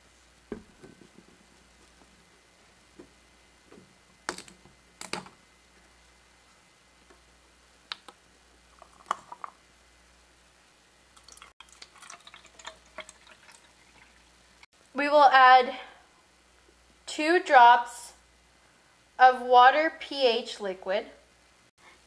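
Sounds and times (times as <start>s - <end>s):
plastic bottle and cups clicking: 8.8s - 9.6s.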